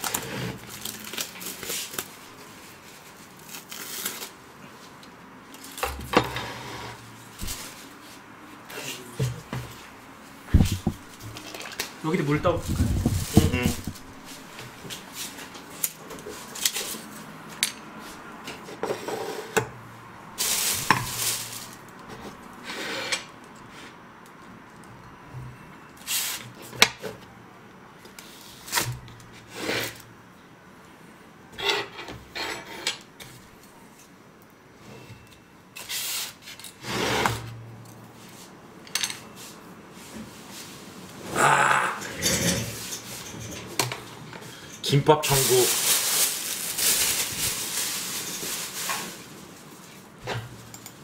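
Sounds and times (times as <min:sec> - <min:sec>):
rustling: 0:07.3 - 0:08.2, 0:10.5 - 0:17.2, 0:20.4 - 0:22.4, 0:45.2 - 0:50.7.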